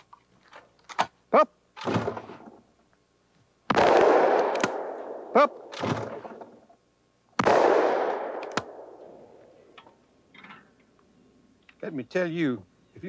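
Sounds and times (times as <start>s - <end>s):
shotgun shot ringing: 3.7s - 6.4s, 7.4s - 9.3s
sharp click: 8.4s - 8.7s.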